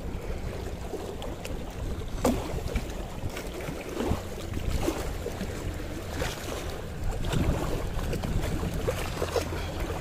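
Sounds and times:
wind rumbling on microphone: 0:00.0 - 0:10.0
small waves washing on rocks: 0:02.2 - 0:10.0.

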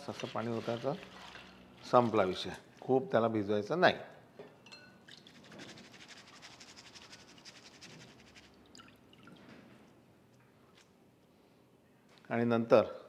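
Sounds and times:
water dripping into bowl: 0:08.6 - 0:09.5.

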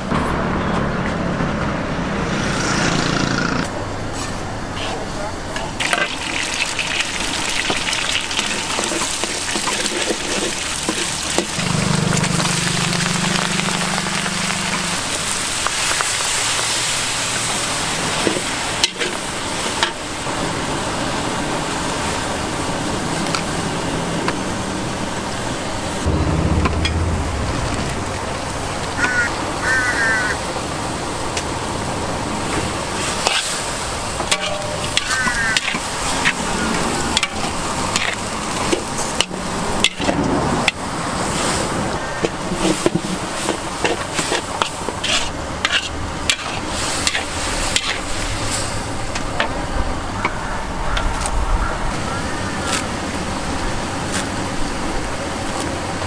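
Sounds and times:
food sizzling in a wok: 0:05.8 - 0:22.2, 0:40.7 - 0:49.0
metal spatula scraping a wok: 0:08.5 - 0:16.6, 0:34.2 - 0:36.4, 0:42.5 - 0:48.2.

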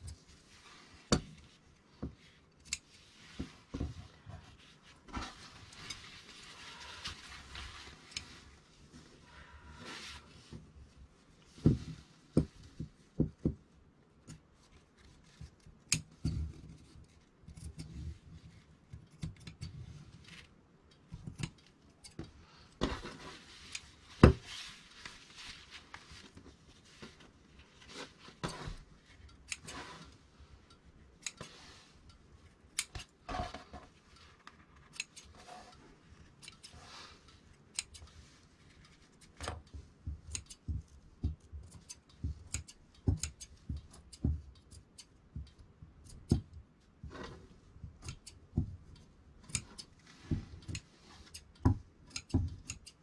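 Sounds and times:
fabric rustling: 0:00.1 - 0:12.7, 0:22.8 - 0:30.2
fabric shears snipping: 0:41.6 - 0:45.2, 0:47.9 - 0:48.6, 0:49.4 - 0:53.0.

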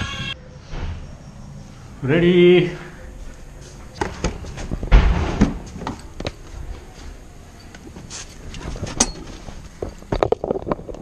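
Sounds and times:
heavy thump: 0:04.8 - 0:05.7.

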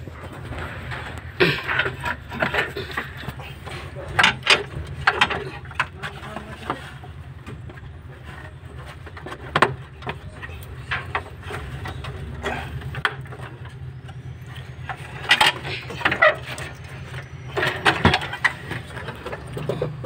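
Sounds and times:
steady low hum: 0:00.0 - 0:20.0
plastic parts clicking and knocking: 0:04.1 - 0:06.8, 0:07.5 - 0:20.0.

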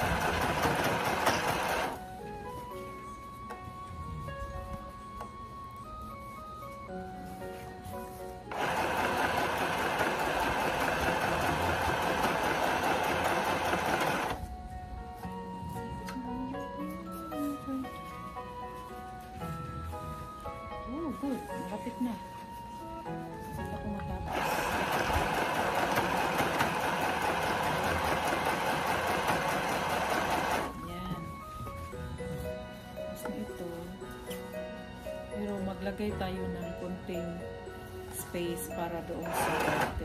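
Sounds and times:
sewing machine stitching: 0:00.0 - 0:02.0, 0:08.5 - 0:14.4, 0:24.3 - 0:30.7, 0:39.2 - 0:40.0
background music: 0:00.0 - 0:40.0.

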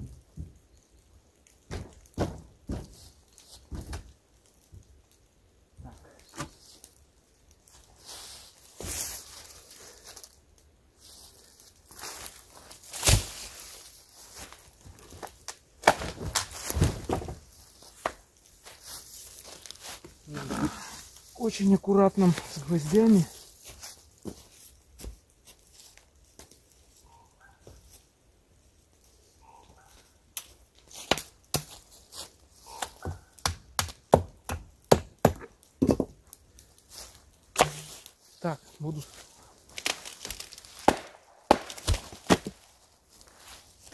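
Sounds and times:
footsteps through dry leaves: 0:07.6 - 0:15.4, 0:16.5 - 0:28.1, 0:31.7 - 0:32.8, 0:36.6 - 0:43.9
hatchet chopping wooden board: 0:33.0 - 0:36.1, 0:37.6 - 0:37.9.

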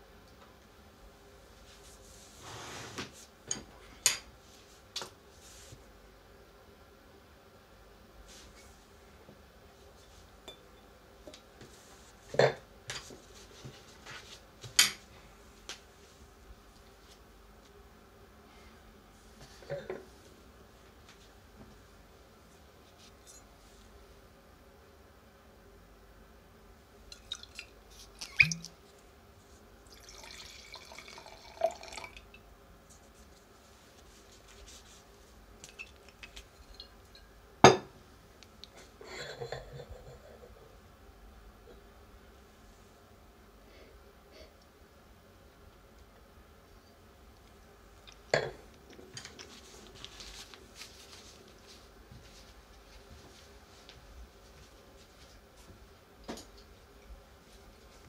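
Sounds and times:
wine pouring into a glass: 0:27.1 - 0:28.8, 0:29.8 - 0:32.4
wine glass set down: 0:37.6 - 0:37.9.

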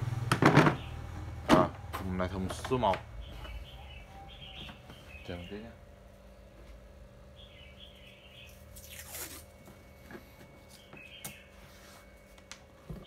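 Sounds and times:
faint bird chirps: 0:03.2 - 0:05.8
masking tape tearing: 0:08.7 - 0:09.5.

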